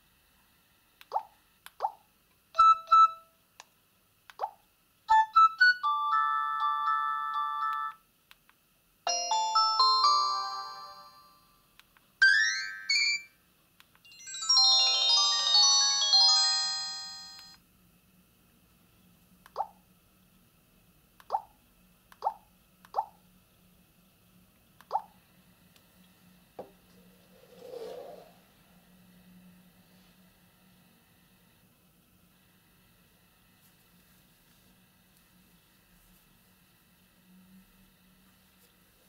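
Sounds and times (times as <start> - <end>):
phone alert tones: 14.1 - 17.6.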